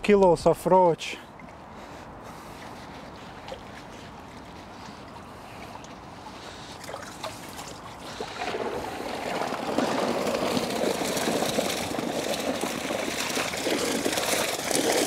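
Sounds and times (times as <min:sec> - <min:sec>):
water pouring and splashing from net: 0:03.2 - 0:15.0.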